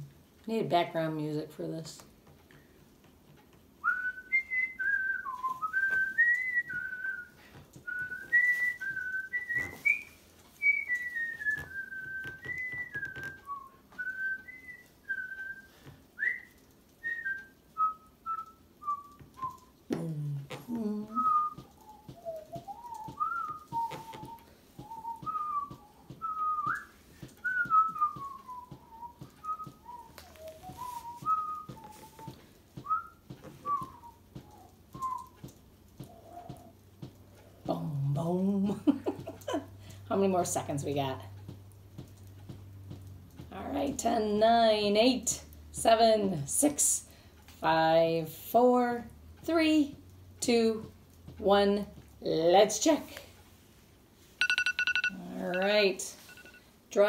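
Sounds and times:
woman whistling a tune: 3.8 - 19.7, 20.9 - 35.4
low vocal sound: 19.9 - 21.5.

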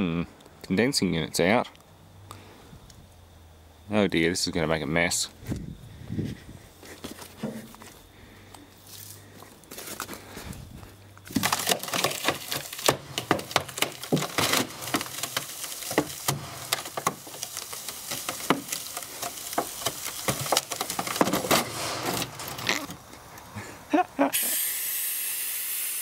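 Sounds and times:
sheet metal and foam cracking: 11.2 - 23.1.

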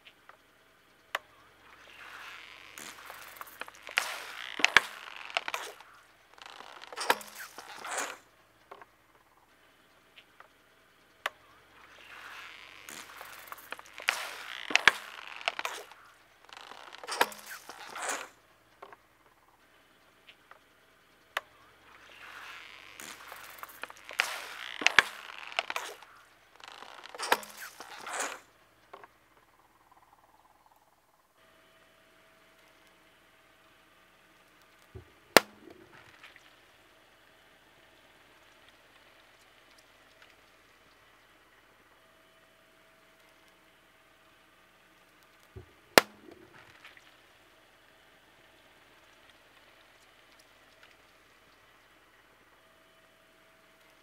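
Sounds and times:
liquid squirting hiss: 1.8 - 8.2
plastic bottles crushed by tyre: 1.9 - 8.9, 12.0 - 18.4, 22.0 - 28.5.

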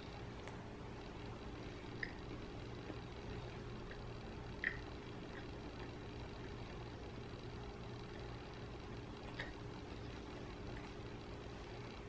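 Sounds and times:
steady low hum: 0.0 - 12.0
mouth clicks: 1.9 - 2.3, 4.6 - 5.5.

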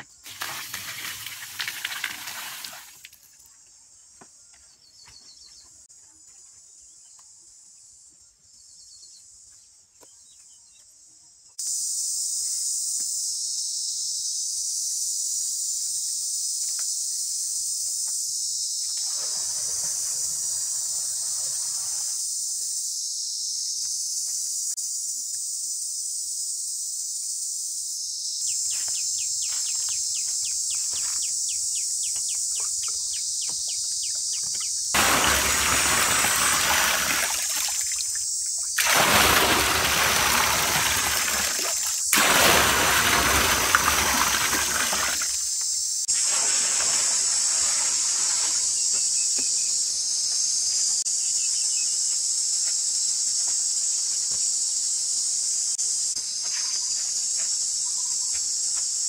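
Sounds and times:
high insect chorus: 0.0 - 59.0
water splashing into a pool: 0.2 - 3.3, 19.0 - 22.1, 34.9 - 48.5.

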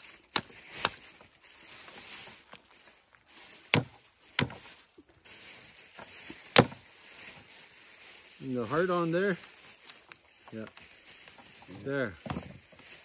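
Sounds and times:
sharp chopping blows: 6.5 - 6.8.

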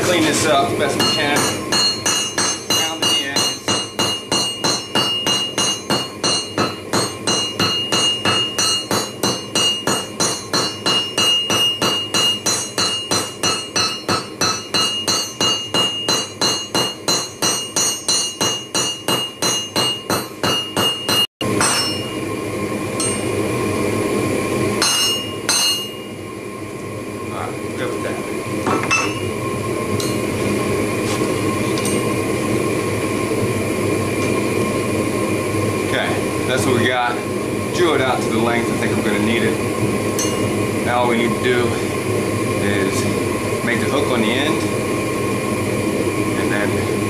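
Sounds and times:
hammer striking metal on anvil: 0.0 - 22.2, 23.0 - 23.3, 24.8 - 26.1, 28.7 - 29.3, 30.0 - 30.2, 31.8 - 32.1, 40.2 - 40.5.

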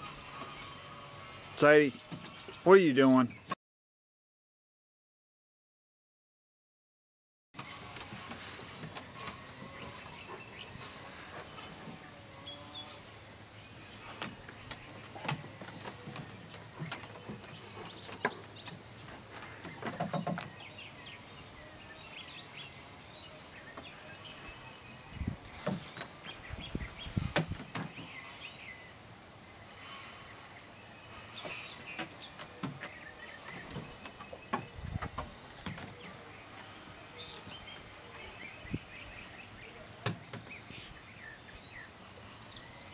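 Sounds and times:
small birds chirping: 0.0 - 3.6, 7.6 - 42.9.

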